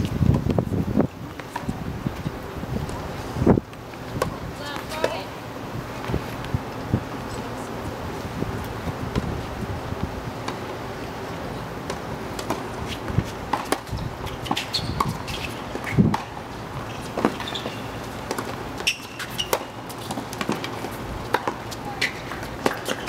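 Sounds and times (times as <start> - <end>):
tennis ball bouncing: 4.2 - 5.4, 11.8 - 23.0
racket hitting tennis ball: 11.8 - 23.0.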